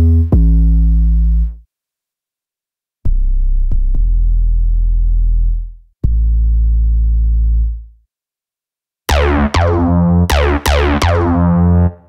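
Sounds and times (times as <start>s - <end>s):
buzzy acid bass notes: 0.0s - 1.6s, 3.1s - 7.9s, 9.1s - 12.0s
deep sub-bass notes: 0.0s - 1.6s, 3.1s - 7.9s, 9.1s - 12.0s.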